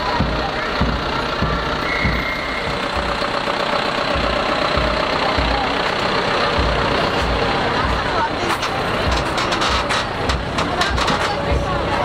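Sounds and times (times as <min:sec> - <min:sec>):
heavy vehicle engine running: 0:00.0 - 0:12.0.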